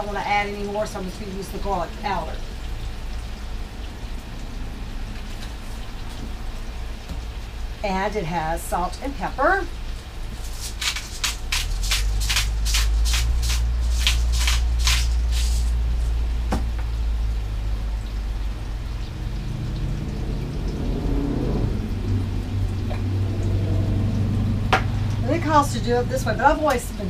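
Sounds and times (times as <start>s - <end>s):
steady low hum: 0.0s - 27.0s
mushrooms sizzling in pan: 8.6s - 18.3s.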